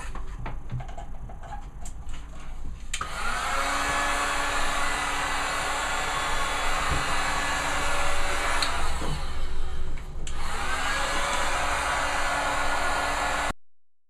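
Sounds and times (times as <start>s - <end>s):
heat gun blowing: 3.0s - 13.5s.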